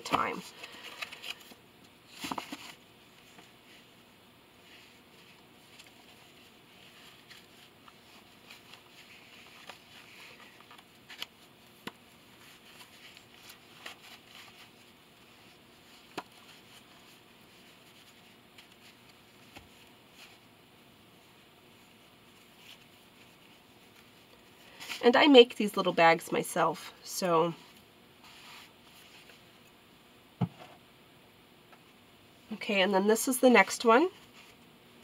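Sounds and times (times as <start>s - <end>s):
cards and box rustling: 0.0s - 3.5s.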